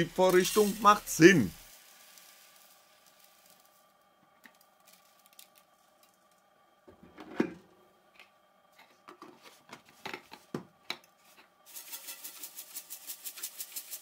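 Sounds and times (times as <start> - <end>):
plastic granulate rattling in tin: 11.7 - 14.0.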